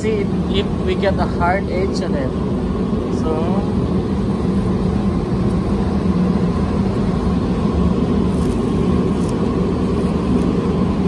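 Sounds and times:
spray booth air roar: 0:00.0 - 0:11.0
tape peeling ticks: 0:08.2 - 0:10.6.

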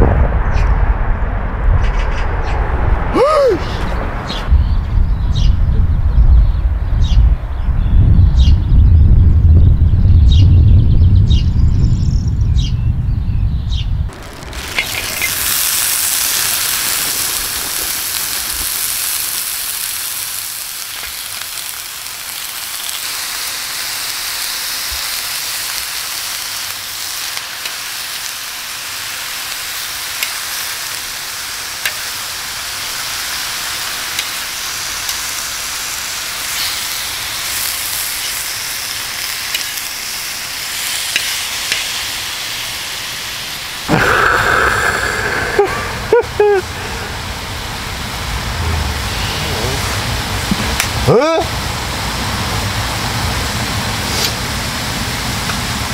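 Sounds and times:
low rumble: 0:00.0 - 0:18.7, 0:46.8 - 0:50.6
meat sizzling in a pan: 0:14.1 - 0:46.6.

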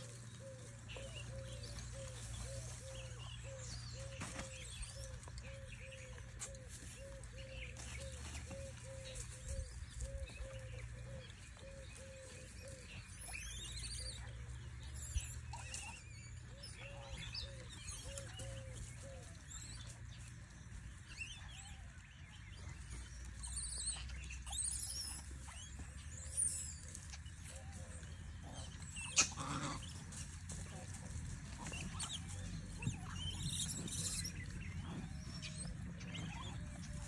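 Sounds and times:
bird low hooting: 0:00.0 - 0:22.0.

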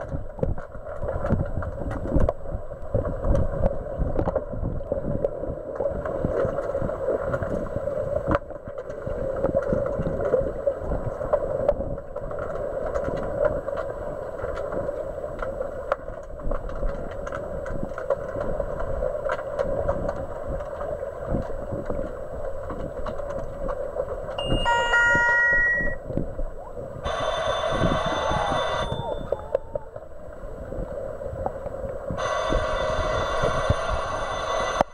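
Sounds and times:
small underwater clicks and knocks: 0:00.0 - 0:24.4
muffled underwater rush: 0:00.0 - 0:34.9
long steady tone: 0:24.3 - 0:26.2, 0:27.0 - 0:30.7, 0:32.1 - 0:34.9
underwater sounder beeps: 0:24.4 - 0:26.1, 0:27.0 - 0:30.0, 0:32.2 - 0:34.9.

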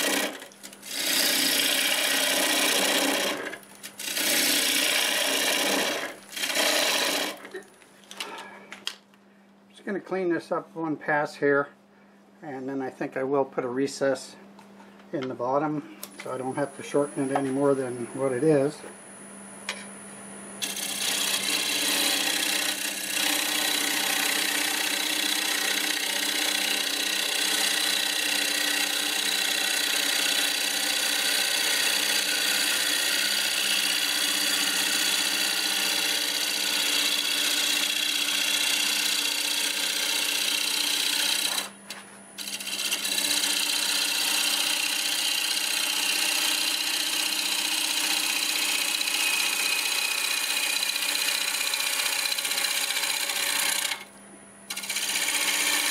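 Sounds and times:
lathe motor hum: 0:00.0 - 0:07.4, 0:20.6 - 0:41.7, 0:42.4 - 0:54.1, 0:54.7 - 0:55.9
gouge cutting wood on lathe: 0:00.0 - 0:07.5, 0:20.6 - 0:41.7, 0:42.4 - 0:54.1, 0:54.7 - 0:55.9.

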